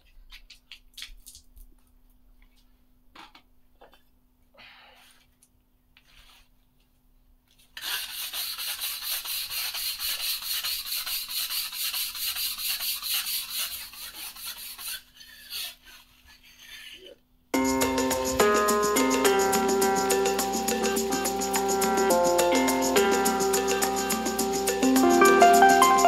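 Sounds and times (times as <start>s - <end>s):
brush scrubbing wet cement floor: 7.8s - 16.6s.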